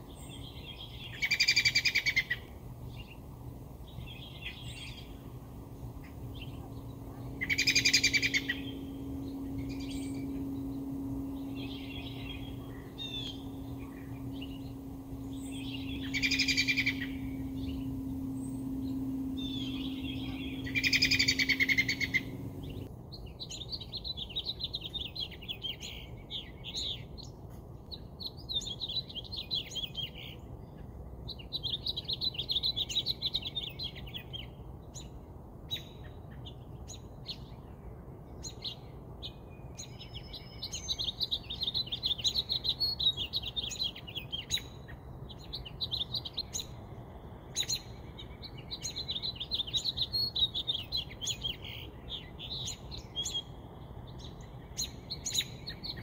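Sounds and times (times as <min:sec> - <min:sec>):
birds chirping trills: 0:00.0 - 0:22.9
low background rumble: 0:02.7 - 0:22.9.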